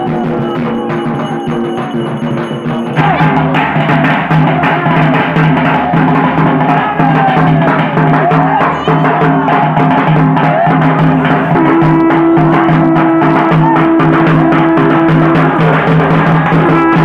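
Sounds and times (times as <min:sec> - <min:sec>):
held melodic tone: 0:00.0 - 0:05.6, 0:10.9 - 0:17.0
large barrel drum strokes: 0:00.0 - 0:17.0.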